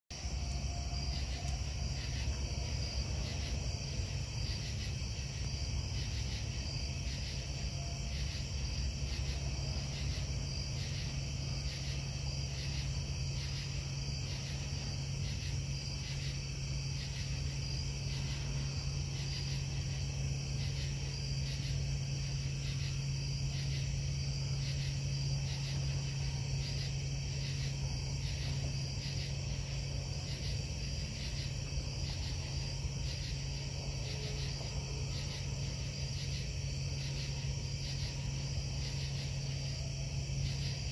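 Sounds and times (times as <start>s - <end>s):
insects chirping: 0.1s - 40.9s
low industrial hum: 0.2s - 40.9s.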